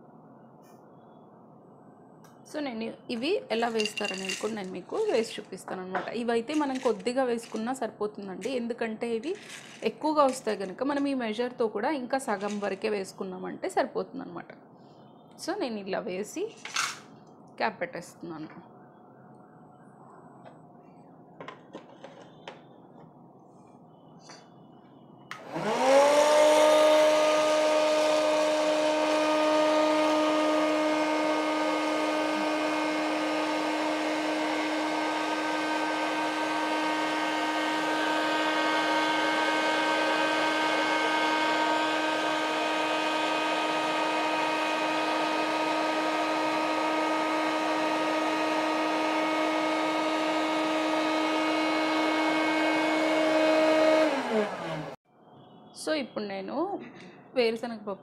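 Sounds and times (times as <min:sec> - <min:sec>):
hot-air snack maker fan whine: 0:25.3 - 0:55.0.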